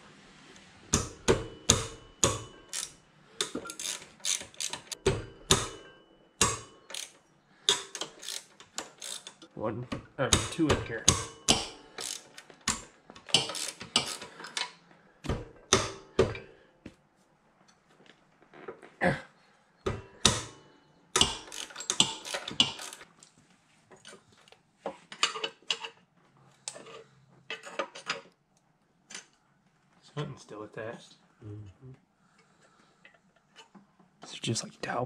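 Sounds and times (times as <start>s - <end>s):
ratchet wrench clicking: 2.2s - 5.0s, 6.4s - 9.4s, 10.4s - 14.6s, 21.2s - 23.0s
metal tools clinking: 21.2s - 23.0s.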